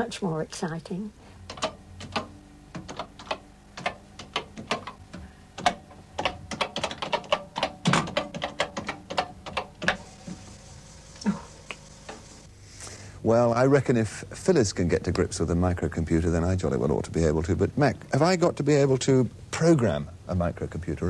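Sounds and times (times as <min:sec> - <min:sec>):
keyboard typing clicks: 0:01.5 - 0:10.0.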